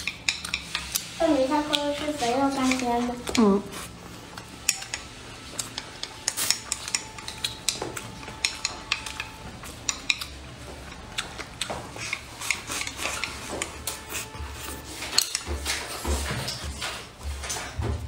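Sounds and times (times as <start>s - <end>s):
chopsticks clicking on ceramic bowl: 0.0s - 1.9s, 2.5s - 3.5s, 4.3s - 14.0s.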